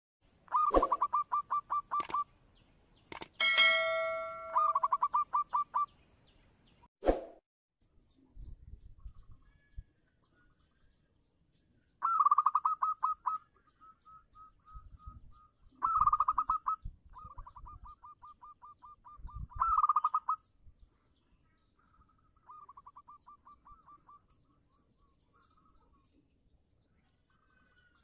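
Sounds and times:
dove cooing: 0.5s - 2.2s, 4.4s - 5.9s.

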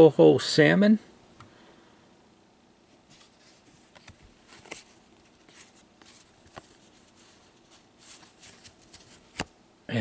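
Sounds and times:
cards sliding and swishing: 3.0s - 9.5s.

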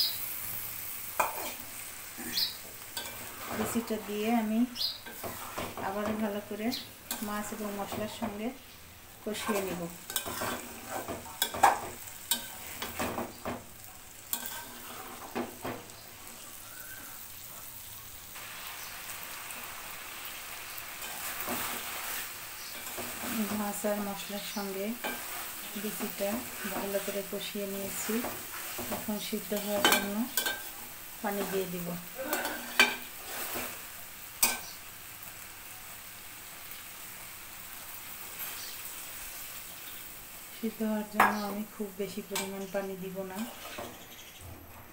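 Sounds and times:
frying sizzle: 0.0s - 44.9s
spatula scraping metal pan: 2.2s - 4.3s, 5.0s - 6.2s, 9.4s - 13.2s, 14.3s - 15.5s, 43.3s - 44.1s
metal spatula clacking on pan: 10.1s - 13.3s, 28.2s - 30.7s, 34.4s - 34.6s.

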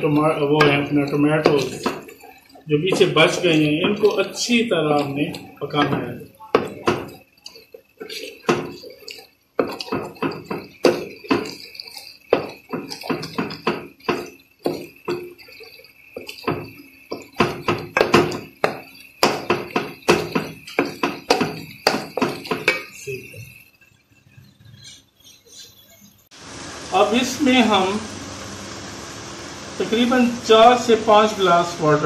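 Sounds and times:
wooden spoon scraping metal pot: 0.0s - 23.1s.

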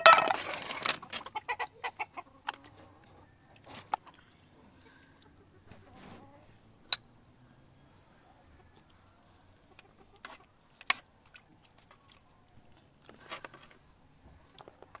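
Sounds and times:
hen clucking: 0.0s - 6.6s, 8.2s - 10.7s.

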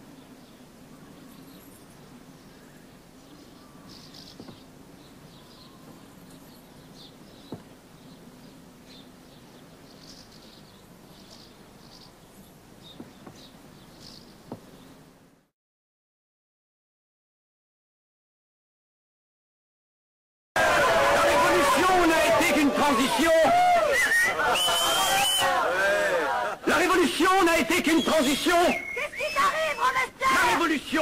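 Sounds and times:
small birds chirping: 0.0s - 15.5s, 26.8s - 31.0s.

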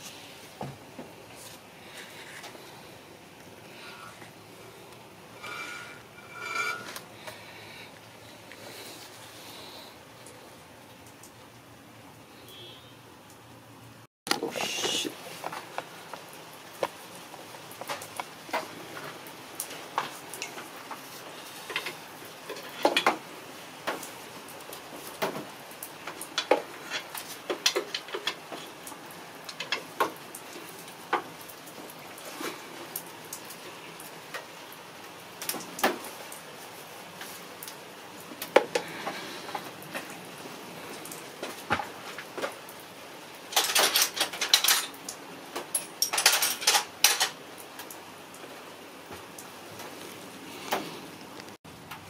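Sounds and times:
metal tools clinking and knocking: 5.4s - 7.0s, 43.5s - 45.0s, 45.7s - 47.4s.

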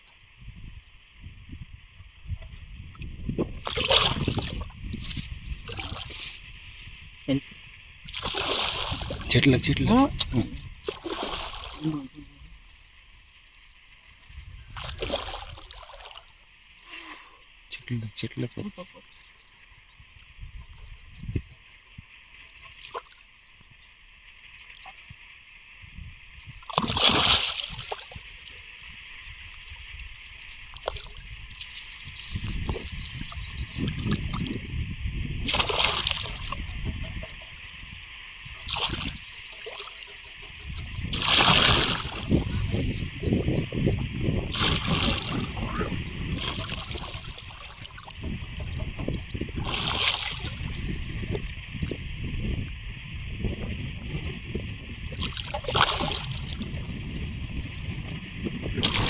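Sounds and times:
wind on microphone: 0.0s - 12.7s, 14.1s - 16.1s, 19.7s - 22.4s, 24.8s - 39.5s, 40.2s - 59.0s
water splashing: 3.6s - 7.4s, 8.0s - 13.9s, 14.7s - 16.5s, 26.6s - 34.5s, 35.4s - 52.0s, 55.0s - 57.1s, 58.6s - 59.0s.

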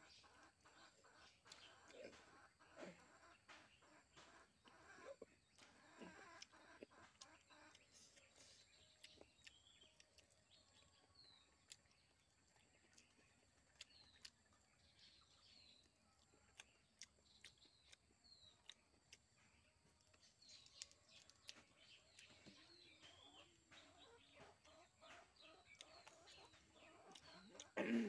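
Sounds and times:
chicken clucks: 0.0s - 9.6s, 18.6s - 27.8s
chewing chicken leg: 0.0s - 28.0s.

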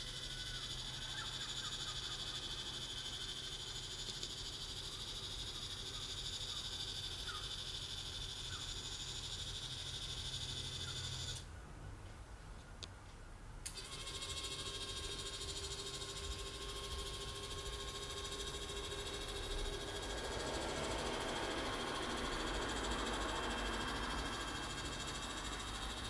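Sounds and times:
camera slider motor whine: 9.1s - 11.4s, 13.7s - 26.0s.

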